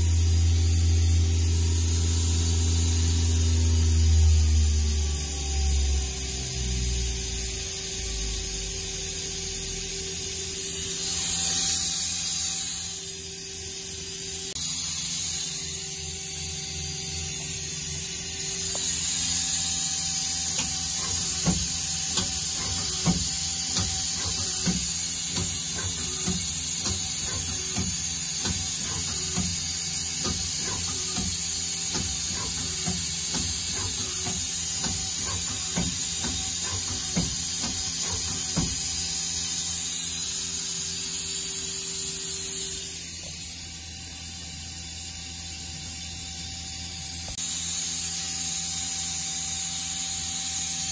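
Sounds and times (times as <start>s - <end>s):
machine motor whine and hum: 0.0s - 50.9s.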